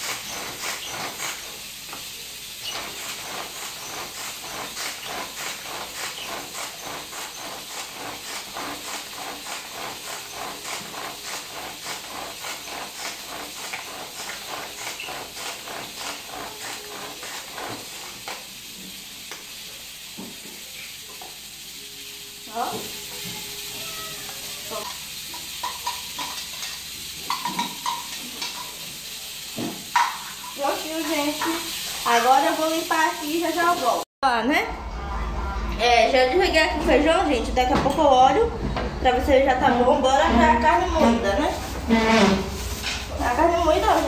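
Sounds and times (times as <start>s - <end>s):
food chopper strokes: 0.0s - 19.1s, 40.4s - 44.0s
steady hiss: 0.0s - 34.0s.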